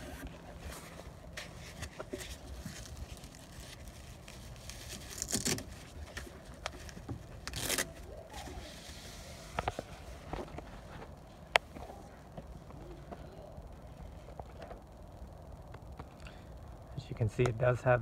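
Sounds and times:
scraping rustling handling noise: 0:00.0 - 0:11.9.

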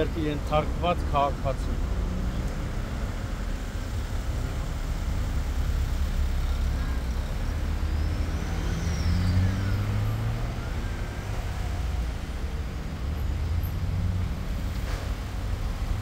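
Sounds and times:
traffic engine hum: 0:00.0 - 0:16.0.

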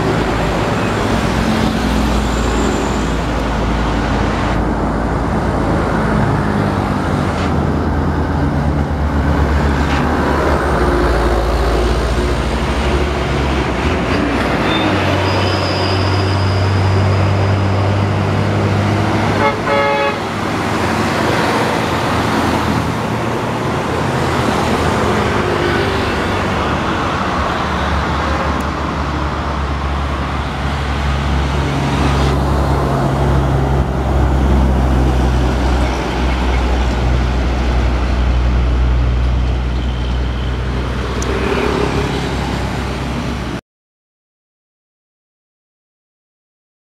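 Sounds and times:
heavy truck diesel engines passing: 0:00.0 - 0:43.6
short truck horn toot: 0:19.4 - 0:20.2.

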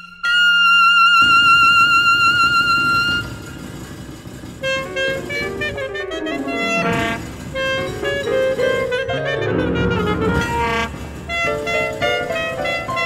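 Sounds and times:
short pitched notes: 0:00.0 - 0:13.0
saxophone high note with vibrato: 0:04.6 - 0:13.0.

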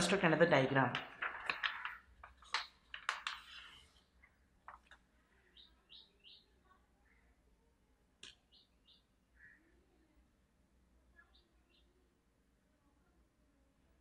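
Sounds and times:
paper tapping on desk: 0:00.9 - 0:03.7
paper rustling: 0:00.9 - 0:05.1.

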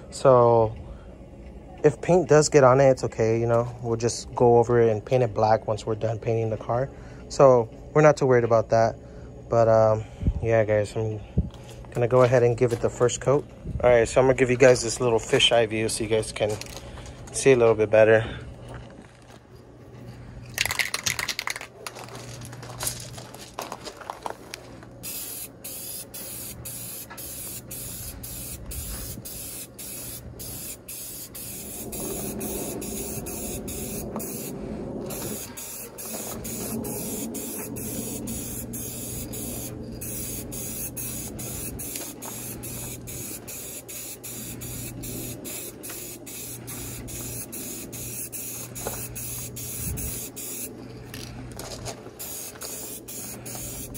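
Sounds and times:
spray paint can hissing: 0:25.0 - 0:34.5, 0:35.1 - 0:50.7, 0:52.2 - 0:53.9.

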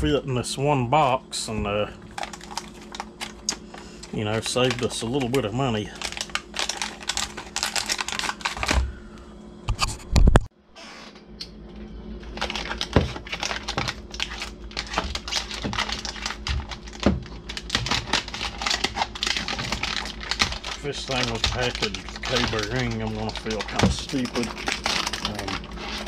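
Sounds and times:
plastic wrapping crinkling: 0:02.0 - 0:08.9, 0:12.2 - 0:26.0.

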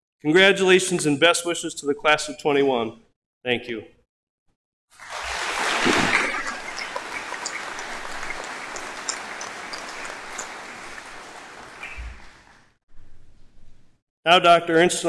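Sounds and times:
audience applauding: 0:05.0 - 0:12.8.

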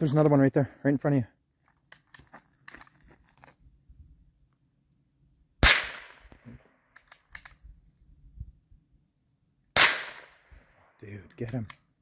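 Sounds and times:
handgun shots: 0:05.6 - 0:06.3, 0:09.8 - 0:10.4.

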